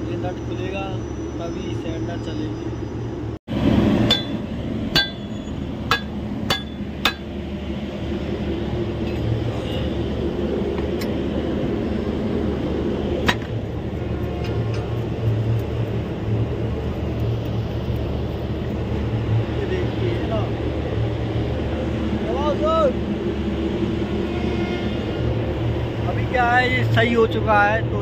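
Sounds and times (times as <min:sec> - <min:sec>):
steady low hum: 0:00.0 - 0:28.0
spanner striking metal box: 0:04.1 - 0:07.3.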